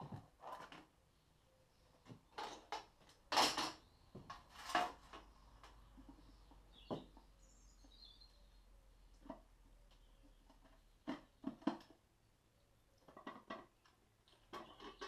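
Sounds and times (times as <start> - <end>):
tools and metal parts clinking: 2.4 - 3.8
faint high bird chirps: 5.8 - 8.8.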